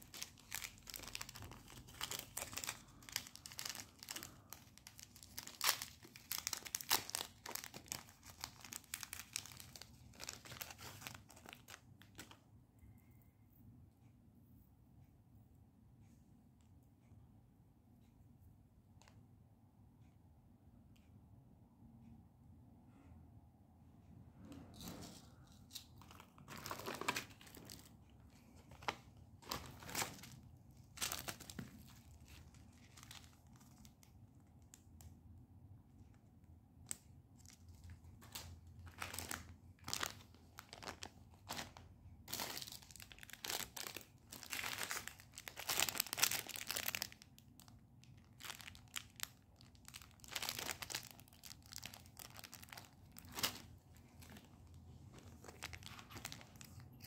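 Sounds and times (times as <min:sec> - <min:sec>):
packaging crinkling and tearing: 0:00.0 - 0:12.4, 0:24.8 - 0:28.0, 0:28.6 - 0:34.8, 0:36.9 - 0:57.0.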